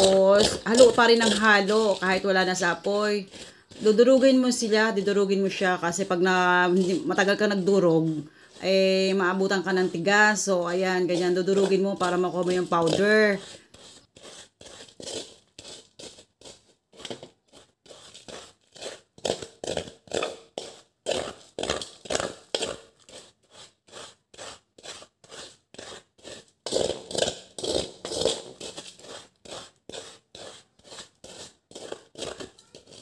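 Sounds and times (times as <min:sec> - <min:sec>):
metal spoon scraping in bowl: 0:00.0 - 0:33.0.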